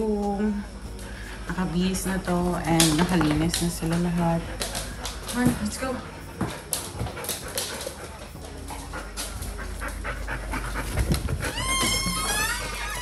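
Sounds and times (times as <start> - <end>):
dog panting: 0.9 - 12.4
dog claws clicking on wood floor: 2.6 - 9.5
dog whining: 9.6 - 13.0.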